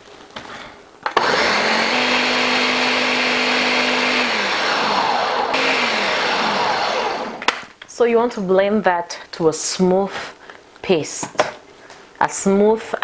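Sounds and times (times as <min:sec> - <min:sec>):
blender motor running: 0:01.1 - 0:07.6.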